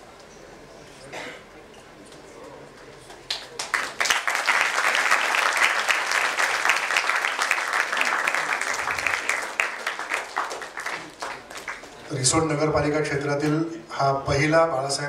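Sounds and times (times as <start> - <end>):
audience applauding: 3.2 - 12.2.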